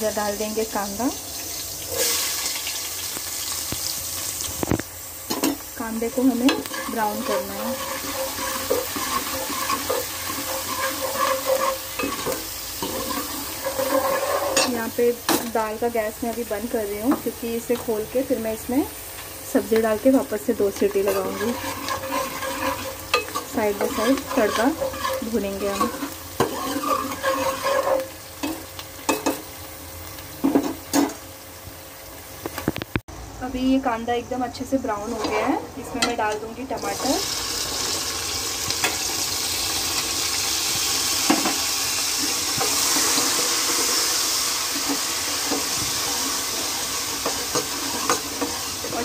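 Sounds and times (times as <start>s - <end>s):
onions sizzling in hot oil: 0.0s - 49.0s
steel spoon scraping pan: 5.3s - 15.4s, 20.8s - 29.4s, 42.5s - 49.0s.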